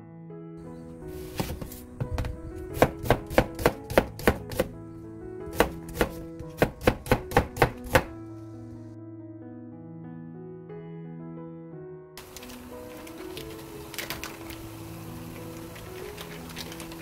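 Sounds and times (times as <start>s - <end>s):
knife slicing onion on steel: 1.2s - 4.7s, 5.5s - 8.1s.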